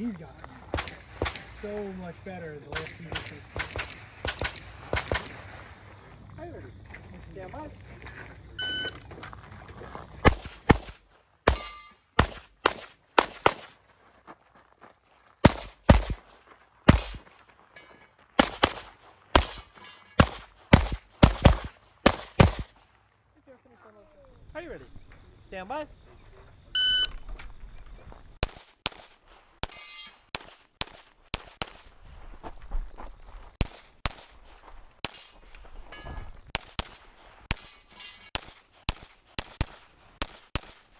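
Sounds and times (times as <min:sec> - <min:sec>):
pistol shots: 0:00.7 - 0:01.5, 0:02.7 - 0:05.4, 0:10.2 - 0:13.8, 0:15.4 - 0:16.3, 0:16.9 - 0:17.3, 0:18.4 - 0:22.8, 0:28.4 - 0:31.9, 0:36.5 - 0:40.9
shot timer beep: 0:08.6 - 0:09.0, 0:26.8 - 0:27.2
steel target ringing: 0:11.5 - 0:12.1
short metallic ring: 0:11.6 - 0:12.0, 0:29.7 - 0:30.2.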